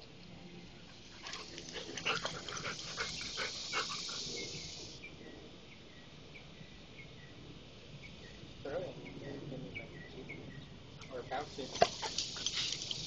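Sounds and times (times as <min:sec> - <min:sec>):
dog panting: 0:01.2 - 0:04.7, 0:11.6 - 0:13.0.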